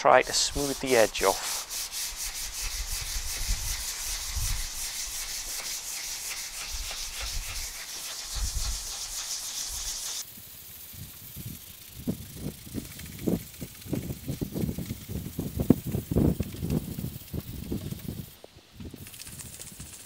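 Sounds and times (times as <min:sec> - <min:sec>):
sandpaper rasping: 0:00.2 - 0:10.3.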